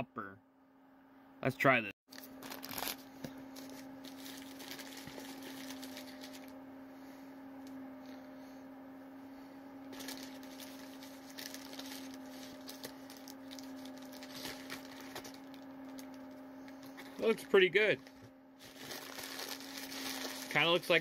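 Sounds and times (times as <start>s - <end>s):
steady low hum: 0.0s - 21.0s
paper wrapper crinkling: 2.1s - 6.5s, 9.9s - 16.2s, 18.0s - 21.0s.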